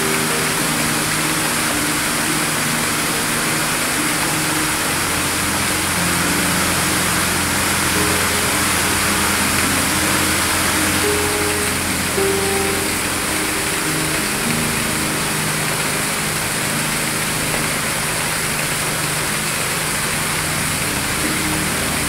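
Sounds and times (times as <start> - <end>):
slow held chords: 0.0 - 22.0
steady hiss: 0.0 - 22.0.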